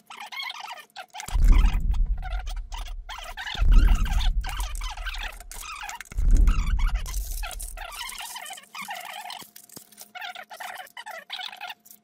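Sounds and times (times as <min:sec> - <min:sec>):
glass crumbs clinking and scraping: 0:07.0 - 0:12.0.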